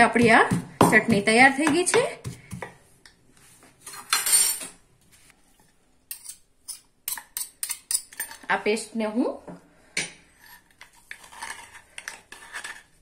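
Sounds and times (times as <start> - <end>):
spoon scraping a dish: 10.2 - 13.0.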